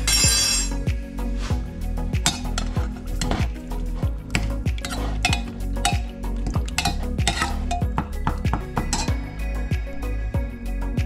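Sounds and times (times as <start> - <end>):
background music with beat: 0.0 - 11.0
metal spoon stirring in pot: 2.2 - 9.2.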